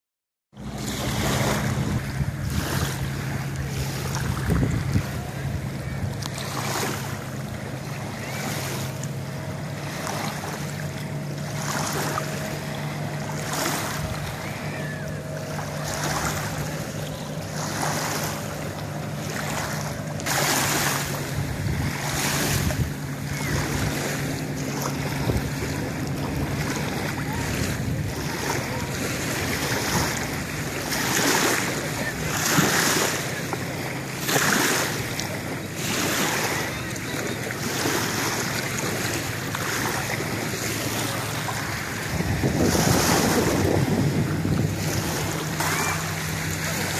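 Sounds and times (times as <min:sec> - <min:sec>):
lake waves lapping: 0:00.6 - 0:46.9
steady low hum: 0:00.6 - 0:46.9
wind on microphone: 0:00.8 - 0:09.4, 0:11.8 - 0:33.4, 0:40.0 - 0:46.9.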